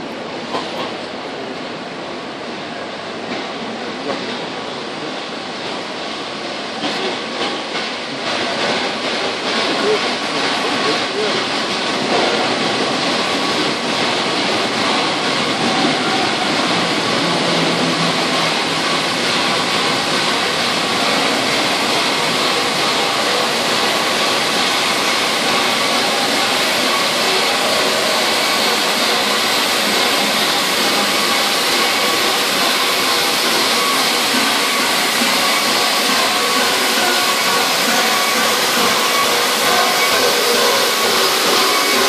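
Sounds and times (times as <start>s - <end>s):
steam locomotive hissing: 0.0s - 42.0s.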